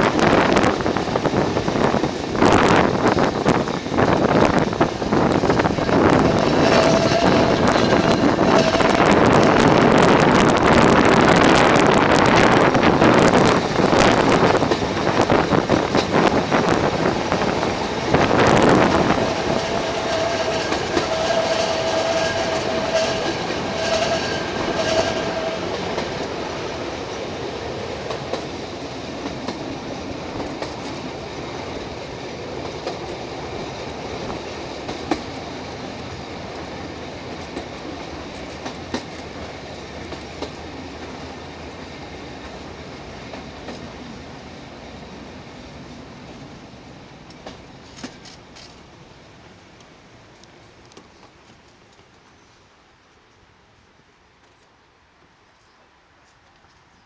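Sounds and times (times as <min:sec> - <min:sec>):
streetcar wheels rumbling on rails: 0:00.0 - 0:52.5
wheels squealing: 0:05.5 - 0:10.1, 0:17.8 - 0:26.6.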